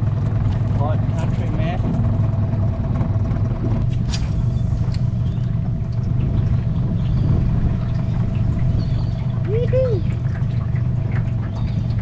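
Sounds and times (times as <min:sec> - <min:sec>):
outboard motor running: 0:00.0 - 0:12.0.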